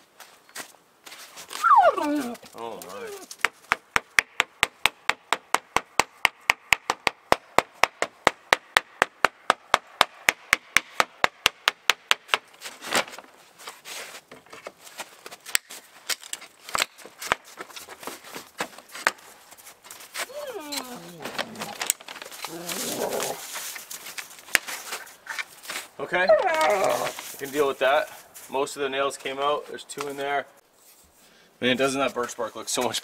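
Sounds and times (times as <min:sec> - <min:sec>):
hammer striking wooden frame: 0:03.4 - 0:12.5
scattered knocks on wood: 0:03.4 - 0:12.5.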